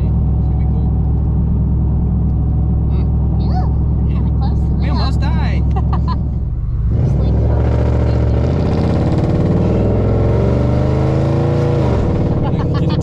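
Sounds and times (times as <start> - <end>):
truck exhaust accelerating: 0.0 - 13.0.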